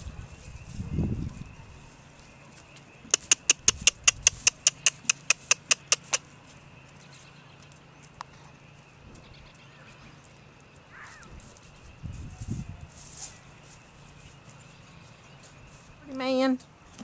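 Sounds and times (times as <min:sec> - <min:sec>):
sharp tongue clicks: 0:03.1 - 0:06.2.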